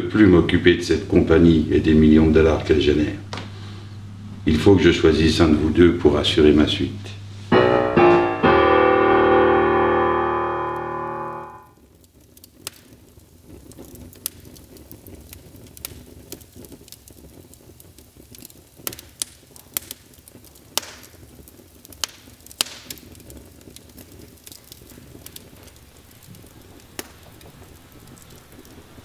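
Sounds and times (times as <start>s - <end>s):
wood fire crackling: 0.0s - 29.0s
low steady rumble: 0.4s - 11.6s
sharp pops of fire: 13.7s - 17.5s, 18.2s - 29.0s.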